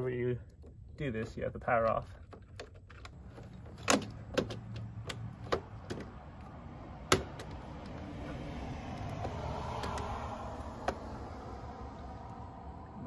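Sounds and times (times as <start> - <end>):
clicks and knocks in metal panel: 2.2 - 6.2, 7.1 - 7.6.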